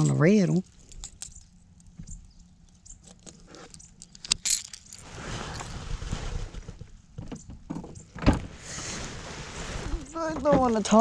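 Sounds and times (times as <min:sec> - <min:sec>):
fishing gear clicking and rattling: 0:00.0 - 0:05.7
rustling noise: 0:04.5 - 0:07.2, 0:08.4 - 0:11.0.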